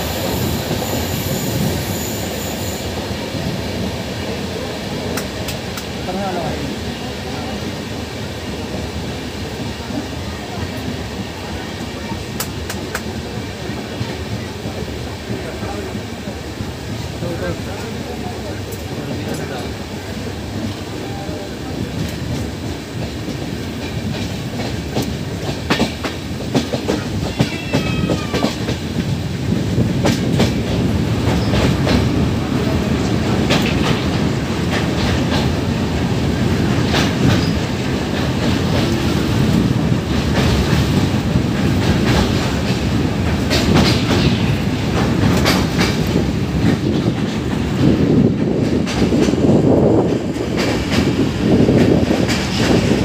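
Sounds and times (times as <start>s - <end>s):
train crossing steel bridge: 0.0s - 53.0s
train rumble: 0.0s - 53.0s
wheels clacking over rail joints: 21.8s - 29.2s, 29.8s - 53.0s.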